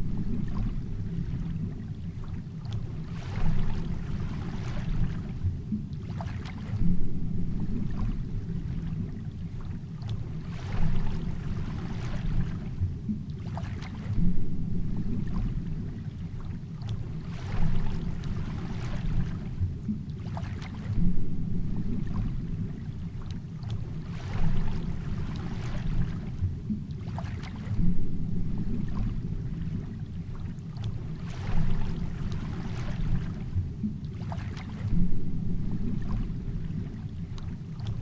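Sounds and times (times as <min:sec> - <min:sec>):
muffled underwater rumble: 0:00.0 - 0:38.0
rush of water: 0:00.0 - 0:38.0.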